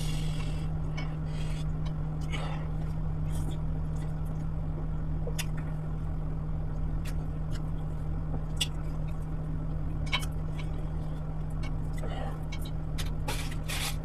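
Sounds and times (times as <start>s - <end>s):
low steady hum: 0.0s - 14.0s
person chewing wet food: 7.0s - 14.0s.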